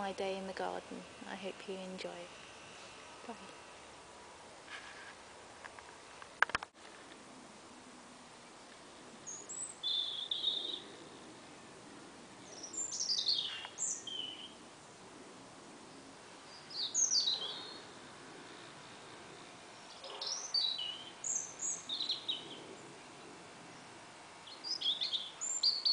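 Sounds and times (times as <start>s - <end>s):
outdoor background noise: 0.0s - 25.9s
birds chirping and trilling: 9.2s - 11.3s, 12.4s - 14.6s, 15.9s - 25.9s.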